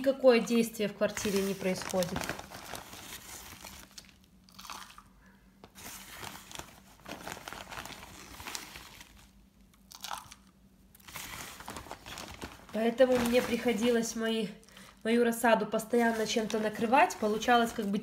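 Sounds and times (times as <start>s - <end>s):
plastic bag crinkling: 0.4s - 15.1s, 15.8s - 18.0s.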